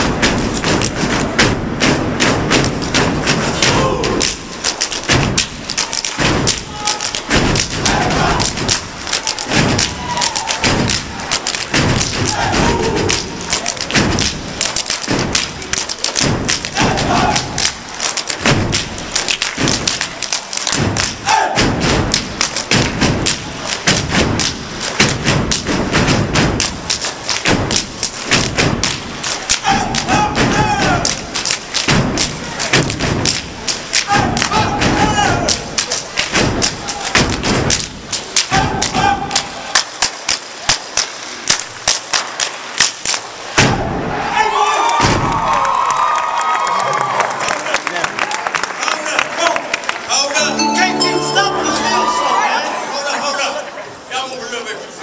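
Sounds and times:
foot stomps on wooden stage: 0.0s - 11.1s, 11.7s - 17.8s, 18.4s - 29.2s
hand claps in unison: 2.5s - 43.3s, 44.9s - 51.3s
people shouting calls: 6.6s - 11.4s, 16.7s - 17.7s, 21.2s - 21.7s, 29.6s - 31.2s, 34.0s - 35.7s, 38.5s - 39.7s, 50.4s - 53.0s.

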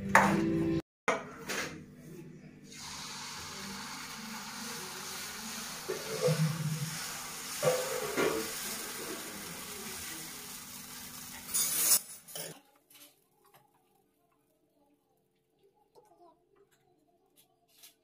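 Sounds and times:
batter sizzling on hot pan: 2.7s - 16.0s
ladle scraping pan: 5.8s - 9.2s.

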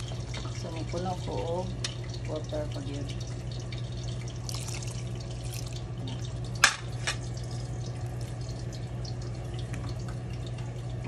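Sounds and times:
soup bubbling in a pot: 0.0s - 11.0s
water pouring: 3.3s - 10.9s.

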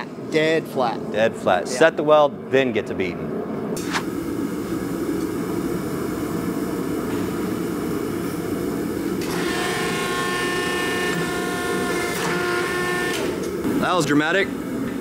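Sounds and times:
gas forge rushing: 3.8s - 15.0s
hydraulic press whining: 9.2s - 13.7s.

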